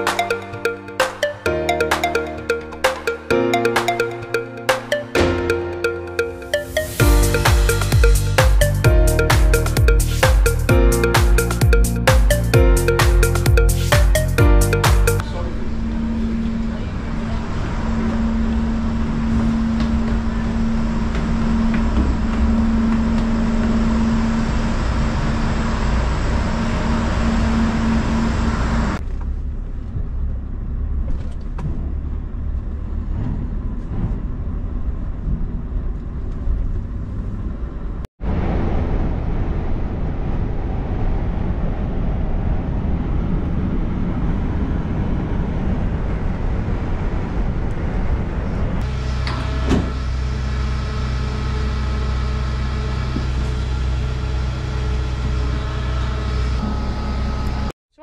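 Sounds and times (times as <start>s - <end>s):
machinery drone with low hum: 15.2s - 30.9s, 38.3s - 57.7s
engine and tyre noise: 15.2s - 57.7s.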